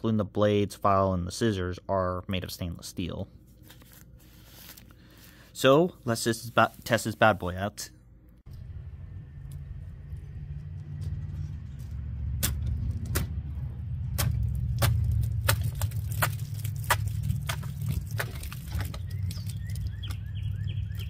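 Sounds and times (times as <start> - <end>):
low steady rumble: 1.4 - 20.9
knife stabbing plastic bottle: 14.1 - 19.8.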